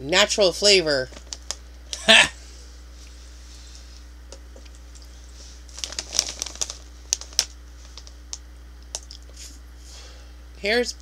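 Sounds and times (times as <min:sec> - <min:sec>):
snack bag crackling: 0:01.1 - 0:01.6, 0:05.6 - 0:09.3.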